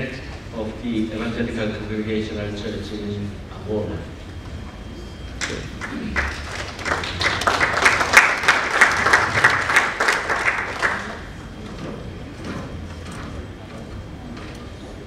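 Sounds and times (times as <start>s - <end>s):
audience applauding: 5.4s - 11.6s.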